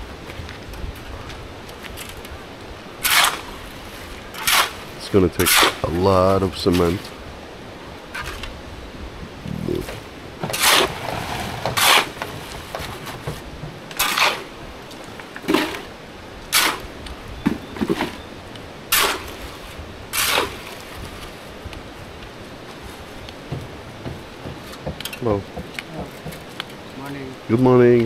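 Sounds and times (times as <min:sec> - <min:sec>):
tools scraping and knocking: 0:09.8 - 0:14.4, 0:23.5 - 0:26.6.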